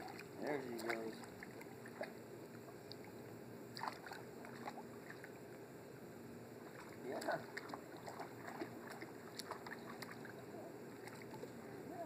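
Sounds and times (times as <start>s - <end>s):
pool water splashing and lapping: 0.0s - 12.0s.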